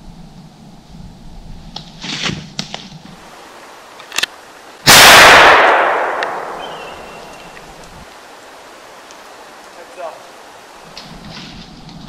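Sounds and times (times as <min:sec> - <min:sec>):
rifle shot with echo: 0:04.9 - 0:07.3.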